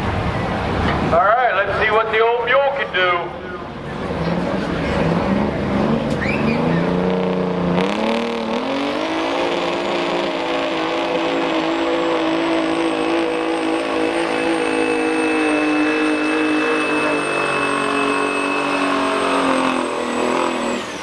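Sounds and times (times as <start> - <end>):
diesel truck engine revving: 2.9 - 21.0
faint high whine: 12.9 - 21.0.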